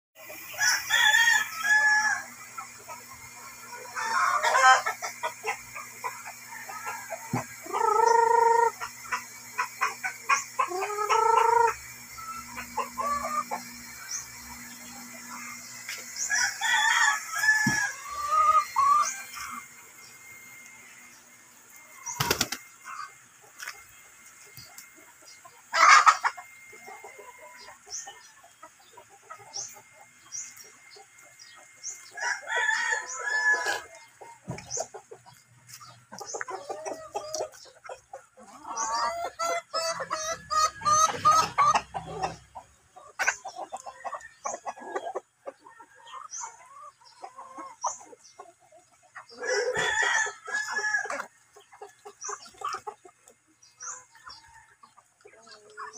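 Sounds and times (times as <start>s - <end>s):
chickens clucking: 0.2s - 55.9s
rooster crowing: 0.6s - 2.3s, 16.3s - 19.6s, 32.2s - 33.9s, 49.4s - 51.3s.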